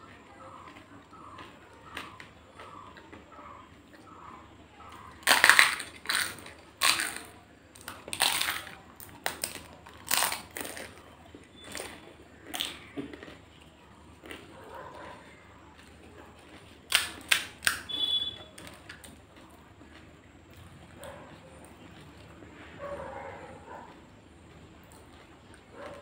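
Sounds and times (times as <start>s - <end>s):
crisp shells crunching while chewed: 0.0s - 22.5s, 23.7s - 26.0s
shell cracking by fingers: 4.9s - 11.0s, 11.6s - 13.3s, 16.9s - 19.2s.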